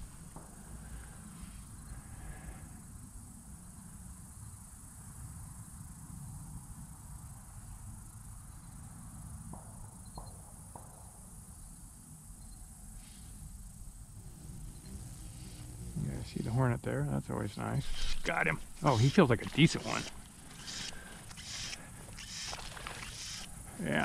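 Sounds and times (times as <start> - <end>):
high-pitched insect chorus: 0.0 - 24.0
faint ticks: 17.7 - 24.0.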